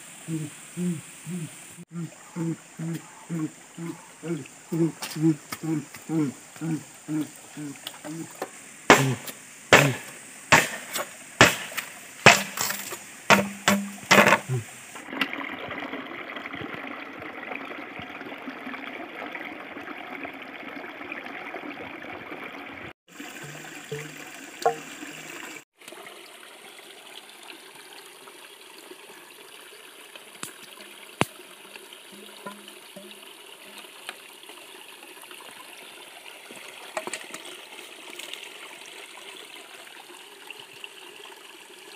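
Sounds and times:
stream burbling: 0.0s - 41.9s
machete chopping bamboo: 8.9s - 14.6s.

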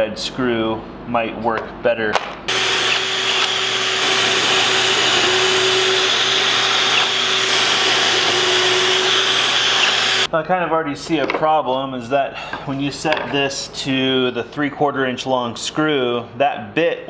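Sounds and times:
cordless drill whining: 2.5s - 10.3s
shop vacuum hissing: 2.5s - 10.3s.

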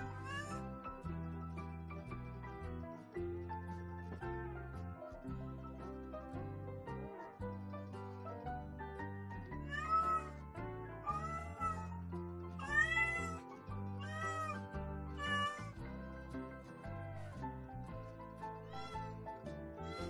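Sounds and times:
cat meowing: 0.0s - 0.7s, 9.6s - 10.4s, 11.0s - 12.0s, 12.6s - 15.8s, 18.7s - 19.1s
background music: 0.0s - 20.0s.

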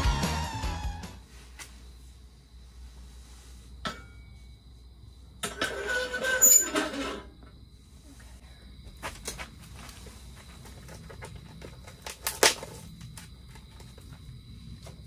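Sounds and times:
faint steady high tone: 3.8s - 4.6s.

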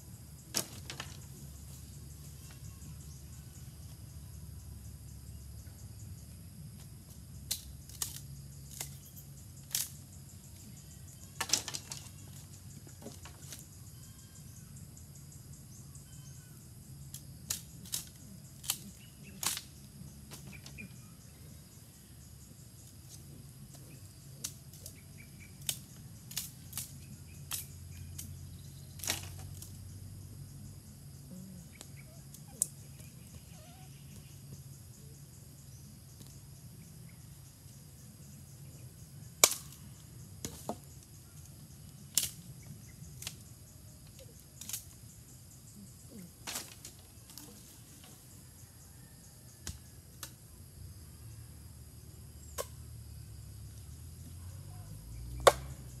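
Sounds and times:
sharp pops from fire: 17.1s - 19.7s, 39.4s - 40.6s, 42.1s - 42.6s.

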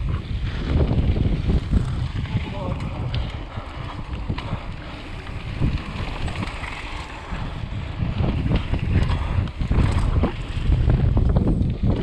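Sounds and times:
wind rushing over microphone: 0.0s - 12.0s
bike knocks and rattles: 8.0s - 12.0s.

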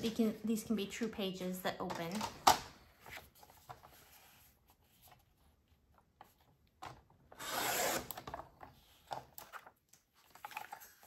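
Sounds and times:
paper trimmer blade scraping: 7.4s - 8.2s.

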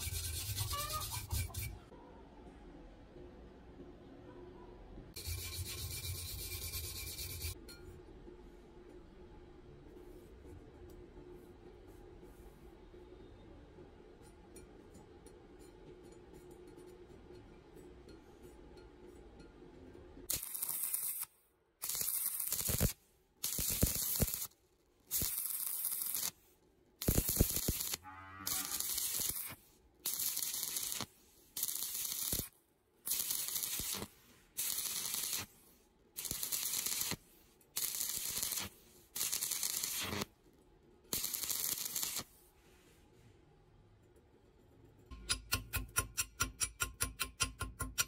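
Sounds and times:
welding arc crackling and hissing: 20.3s - 26.4s, 27.0s - 32.5s, 33.1s - 35.5s, 36.2s - 37.2s, 37.8s - 40.3s, 41.1s - 42.3s.

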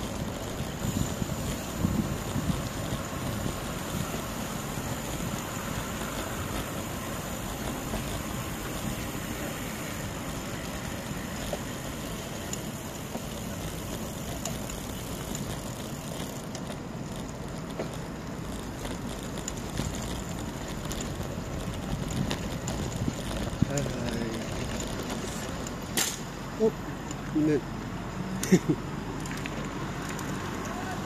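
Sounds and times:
wind buffeting microphone: 0.0s - 14.2s, 19.3s - 25.8s
bicycle road noise: 0.0s - 31.0s.

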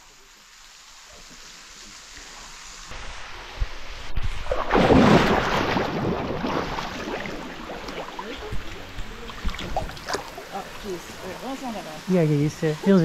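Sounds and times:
water splashing: 1.1s - 13.0s
water lapping and dripping: 4.4s - 13.0s.

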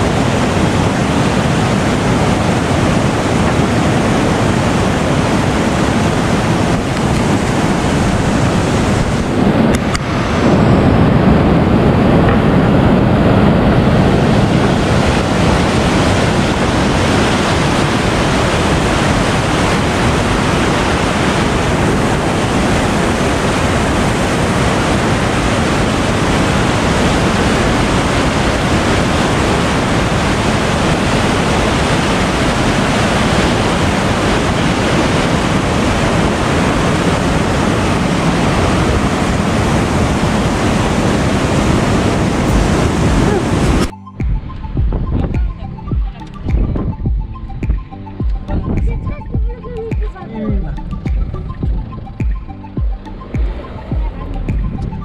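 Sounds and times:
water rushing over weir: 0.0s - 43.9s.

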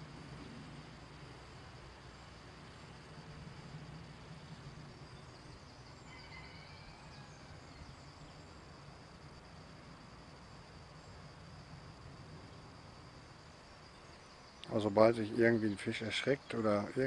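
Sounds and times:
low steady hum: 0.0s - 6.1s
insect chirring: 0.0s - 17.0s
faint bird chirps: 5.1s - 8.6s.

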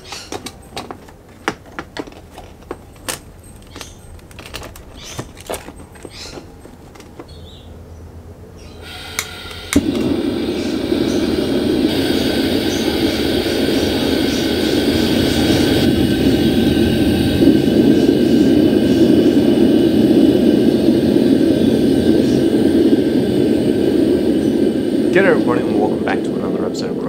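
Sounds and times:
gas burner whoosh igniting: 0.0s - 7.7s, 8.6s - 27.0s
gas burner roaring: 0.0s - 27.0s
igniter click: 8.8s - 16.0s.

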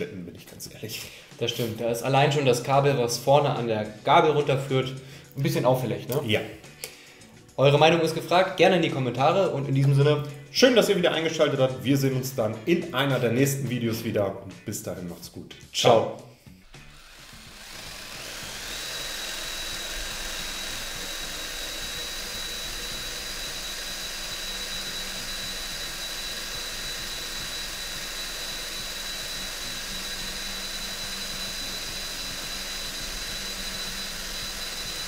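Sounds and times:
cordless drill whining: 16.5s - 35.0s.

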